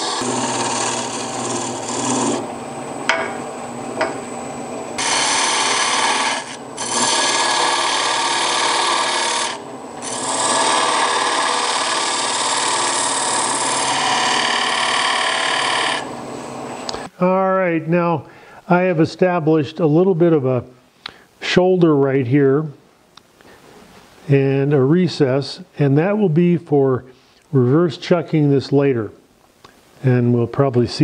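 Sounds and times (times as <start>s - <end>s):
lathe gouge rasping wood: 0.0s - 2.4s, 5.0s - 16.1s.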